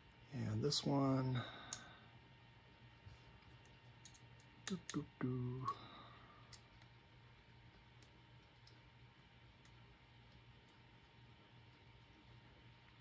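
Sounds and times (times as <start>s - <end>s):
low steady hum: 0.0s - 13.0s
person humming: 5.2s - 5.9s.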